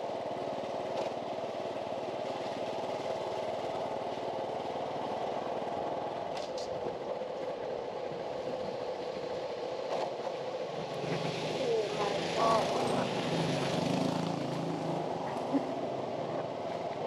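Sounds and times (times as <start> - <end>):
small engine running: 10.0 - 17.0.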